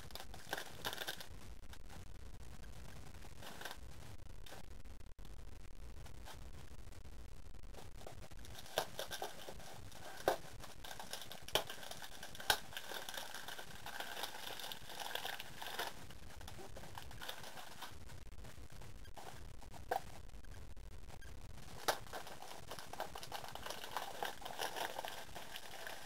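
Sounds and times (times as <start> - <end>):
plastic packaging crinkling: 0.0 - 1.3, 8.0 - 18.0, 21.6 - 26.0.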